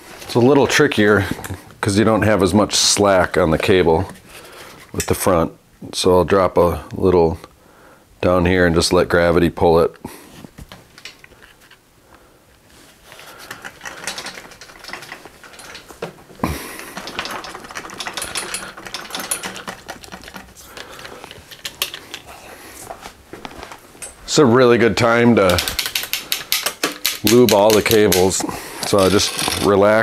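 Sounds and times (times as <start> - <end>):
bicycle brake clicking and rattling: 13.4 - 22.3, 25.4 - 29.6.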